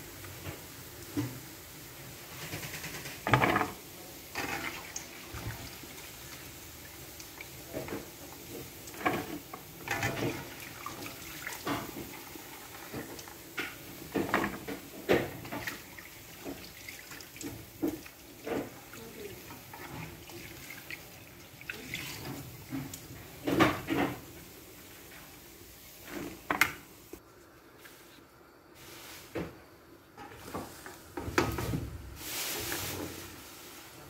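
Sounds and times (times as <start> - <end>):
dough sizzling in hot oil: 0.0 - 27.2.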